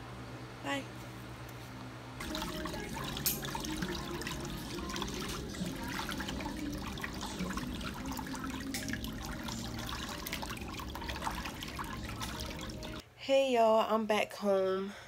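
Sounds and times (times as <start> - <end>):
small water splashes: 2.2 - 13.0
water churning and trickling: 2.2 - 13.0.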